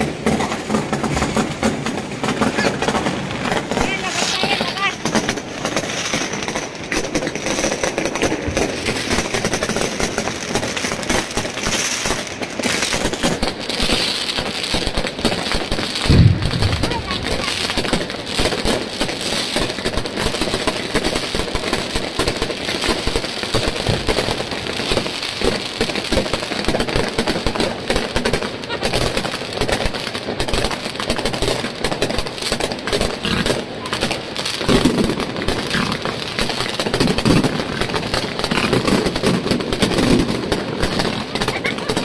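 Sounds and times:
fireworks and firecrackers barrage: 0.0 - 42.0.

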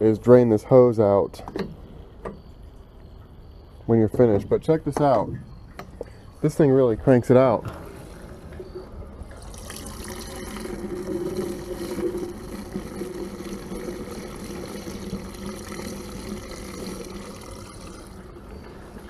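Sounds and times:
fuel rushing from a hose: 9.3 - 18.4.

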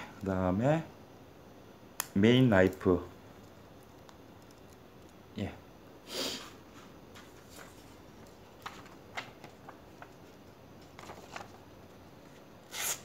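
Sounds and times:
paper rustling: 6.7 - 13.0.

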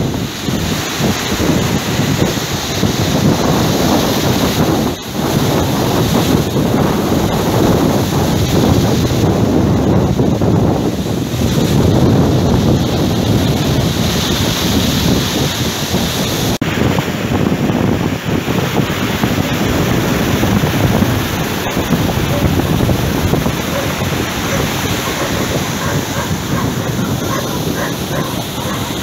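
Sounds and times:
surf breaking on pebble shore: 0.0 - 29.0
wind buffeting microphone: 0.0 - 29.0.

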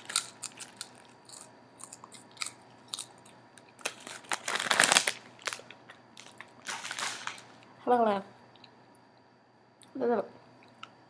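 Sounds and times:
person chewing crunchy chips: 0.0 - 7.5.

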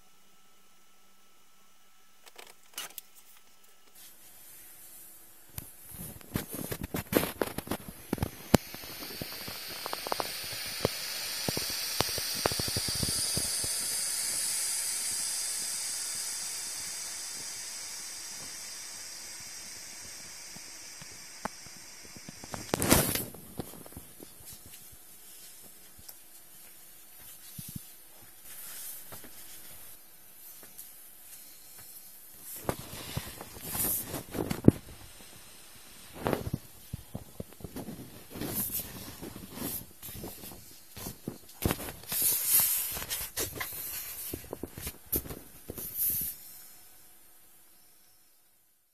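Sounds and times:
vinyl rustling and crinkling: 5.6 - 8.5
air hissing out of inflatable: 5.8 - 24.0, 31.2 - 46.8.

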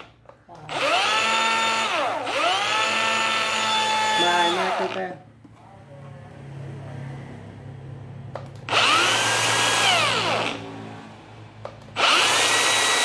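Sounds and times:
angle grinder whining: 0.0 - 5.2, 8.6 - 10.8, 11.8 - 13.0.

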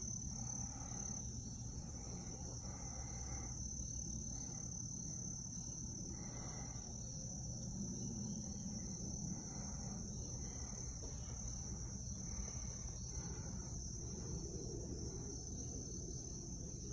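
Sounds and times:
insects trilling: 0.0 - 16.9.

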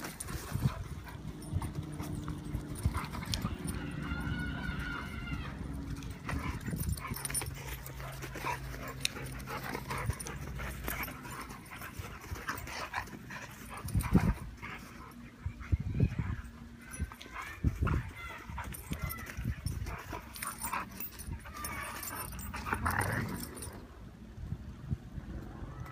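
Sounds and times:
dogs scuffling: 0.0 - 15.6, 16.2 - 23.8.

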